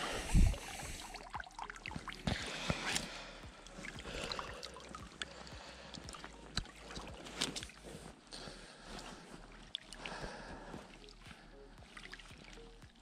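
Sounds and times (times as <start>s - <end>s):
water trickling: 0.3s - 7.8s.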